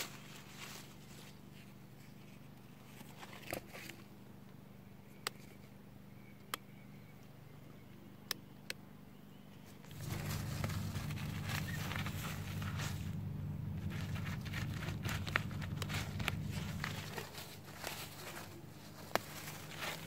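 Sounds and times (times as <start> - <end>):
mice squeaking: 9.8 - 20.0
low rumble with rustling: 9.9 - 20.0.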